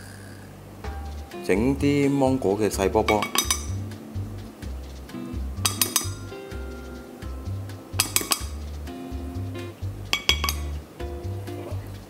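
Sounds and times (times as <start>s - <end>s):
background music with beat: 0.8s - 12.0s
metal clinking on ceramic: 3.1s - 3.8s, 5.6s - 6.3s, 8.0s - 8.6s, 10.1s - 10.8s.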